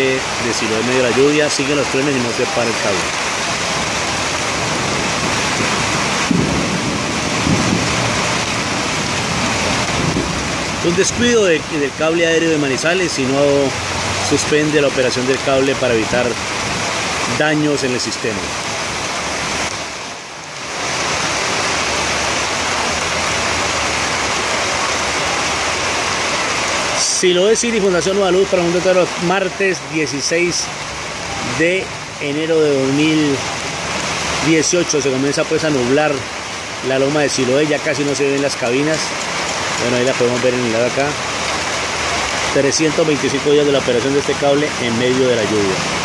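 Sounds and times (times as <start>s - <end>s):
heavy rain: 0.0s - 46.0s
faint thunder rumble: 4.6s - 11.2s.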